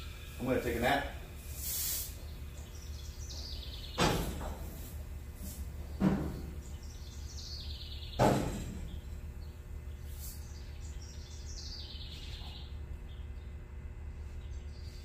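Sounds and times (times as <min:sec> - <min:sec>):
air suspension hiss: 0:00.0 - 0:02.3
sudden air bursts: 0:01.3 - 0:02.3
birds chirping faintly: 0:01.4 - 0:15.0.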